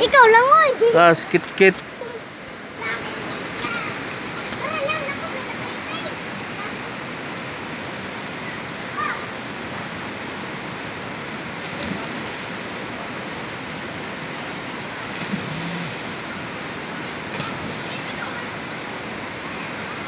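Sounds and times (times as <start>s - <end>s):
faint children's voices: 0.0s - 7.4s, 8.3s - 10.1s, 15.6s - 20.0s
creek water rushing over stones: 0.0s - 20.0s.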